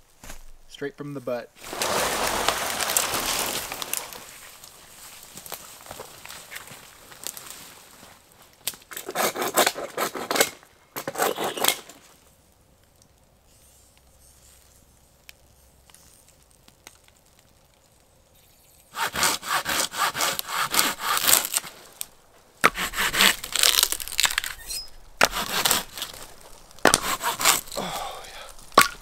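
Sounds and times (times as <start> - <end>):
hand saw cutting wood: 8.9 - 12.0, 18.9 - 21.7, 22.6 - 26.2, 26.8 - 29.0.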